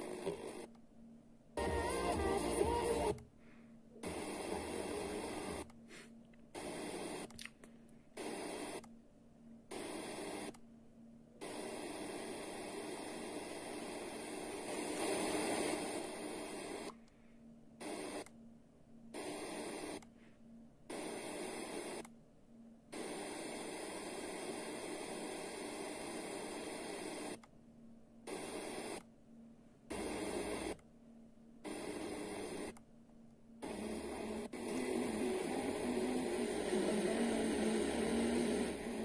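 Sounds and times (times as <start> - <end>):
radio static hiss: 0.0 - 0.8, 1.6 - 3.2, 4.0 - 7.3, 8.2 - 8.8, 9.7 - 10.6, 11.4 - 17.0, 17.8 - 18.2, 19.1 - 20.1, 20.9 - 22.0, 22.9 - 27.4, 28.3 - 29.1, 29.9 - 30.8, 31.6 - 32.8, 33.6 - 39.0.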